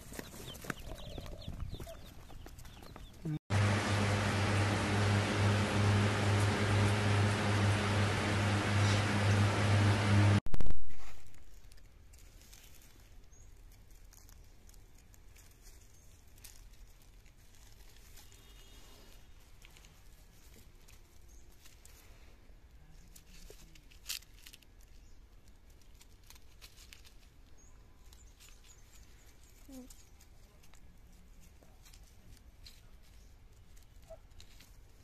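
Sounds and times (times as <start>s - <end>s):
rustling of dry leaf litter: 10.9s - 35.0s.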